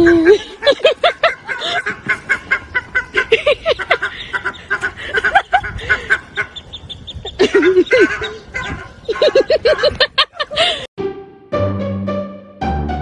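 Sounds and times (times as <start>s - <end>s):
bird calling rapidly: 1.1s - 10.0s.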